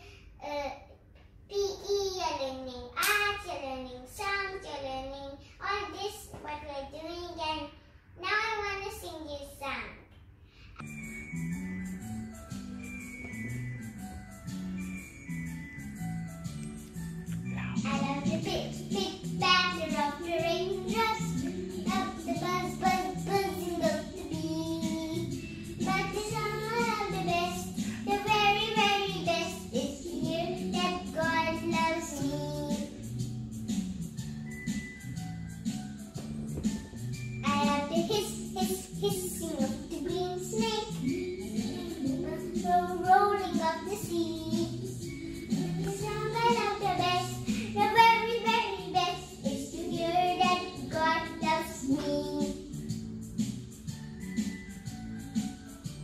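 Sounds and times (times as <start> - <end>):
girl singing: 0.0 - 10.0, 17.4 - 33.1, 37.4 - 52.9
backing track low notes: 16.3 - 18.0.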